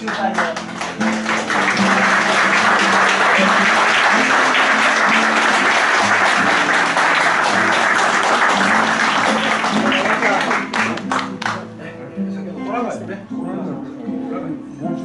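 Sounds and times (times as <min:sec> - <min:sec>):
audience applauding: 0:00.0 - 0:11.6
guitar playing low notes: 0:00.0 - 0:15.0.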